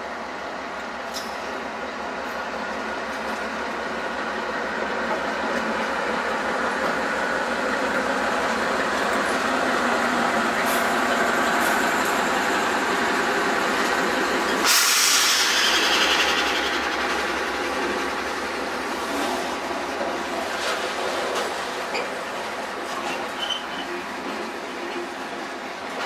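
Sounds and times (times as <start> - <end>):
diesel locomotive engine throbbing: 0.1 - 23.2
rush of hissing noise: 14.4 - 19.8.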